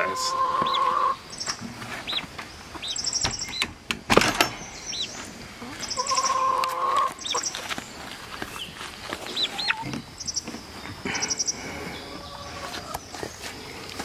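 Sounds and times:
chicks peeping: 0.0s - 3.7s, 4.6s - 14.0s
hen calling: 0.0s - 3.7s, 4.7s - 7.6s, 9.3s - 10.5s.

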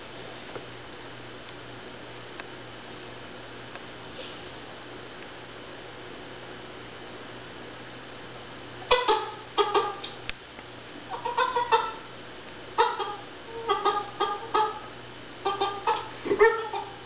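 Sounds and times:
faint steady hum: 0.0s - 17.0s
dog clucking vocalizations: 15.5s - 17.0s.

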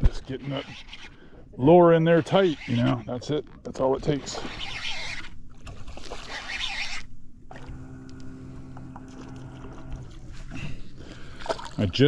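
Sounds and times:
fishing reel noise: 0.0s - 3.2s, 3.8s - 7.7s
low mechanical hum: 0.0s - 12.0s
water splashing: 4.1s - 7.8s, 8.8s - 12.0s.

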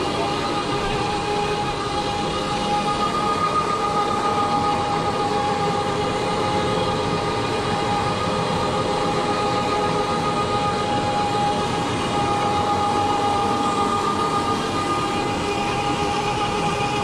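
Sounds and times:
carpet cleaning machine running: 0.0s - 17.0s.

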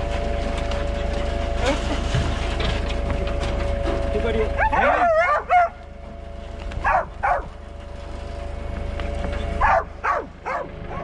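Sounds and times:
steady low rumble: 0.0s - 11.0s
dogs barking and yipping: 4.5s - 6.0s, 6.7s - 8.0s, 9.3s - 11.0s.

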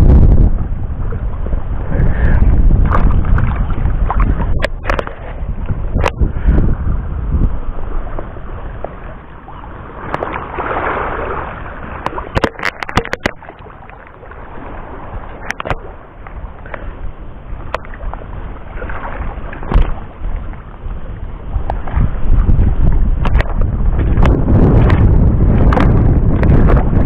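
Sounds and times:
wind rumbling on microphone: 0.0s - 27.0s
water sloshing: 0.9s - 6.2s, 7.8s - 16.9s, 17.6s - 22.2s.

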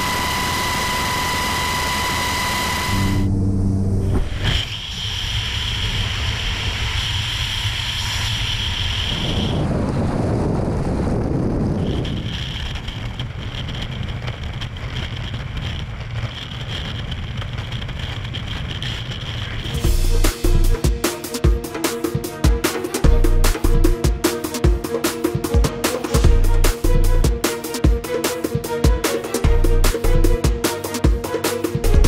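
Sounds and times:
steady high whistle: 0.0s - 3.3s
wind rushing over microphone: 2.3s - 20.1s.

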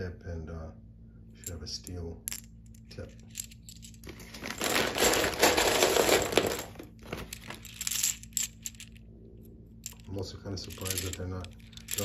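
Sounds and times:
metal cartridges clinking: 1.4s - 9.0s, 9.8s - 12.0s
plastic bag crinkling: 4.1s - 8.8s.

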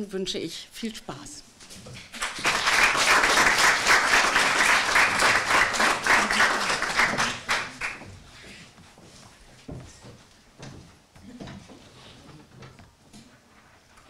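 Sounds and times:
audience applause: 2.1s - 8.1s.

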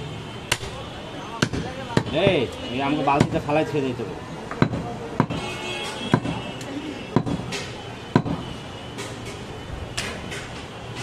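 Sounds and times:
knife chopping meat on wooden block: 6.1s - 6.4s, 7.2s - 7.6s.

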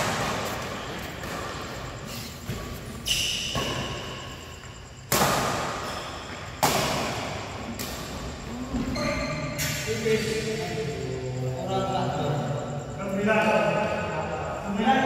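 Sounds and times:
shoe squeak: 0.5s - 5.1s, 5.8s - 6.6s, 8.5s - 10.4s
racket hitting shuttlecock: 5.1s - 8.2s.

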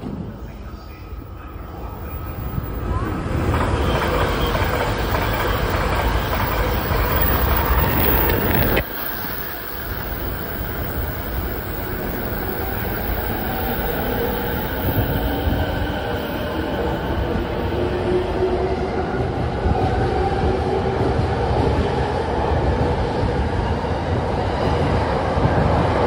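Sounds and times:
wheels rumbling on rails: 0.0s - 26.0s
electric train motor whine: 1.2s - 18.1s.

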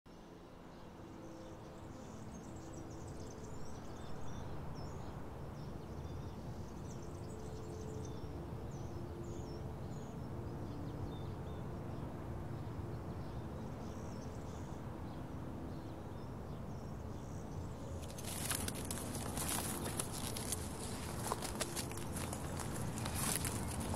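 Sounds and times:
small birds chirping: 16.8s - 23.9s.

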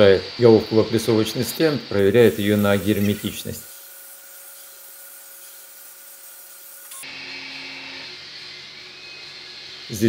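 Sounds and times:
steady hissing: 0.1s - 6.9s.

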